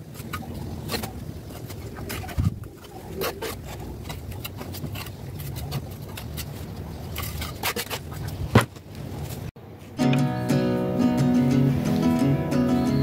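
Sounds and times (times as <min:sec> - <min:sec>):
trowel scraping and tapping mortar: 0:00.0 - 0:09.5.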